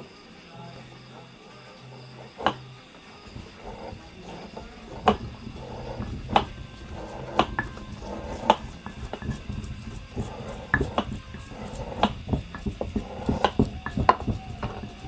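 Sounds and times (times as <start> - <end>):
utensil knocking on hard surface: 3.3 - 15.0.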